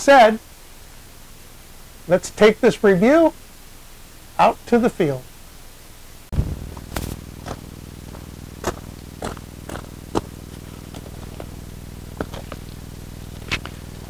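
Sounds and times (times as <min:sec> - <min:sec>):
boots crunching on gravel: 0:06.3 - 0:13.9.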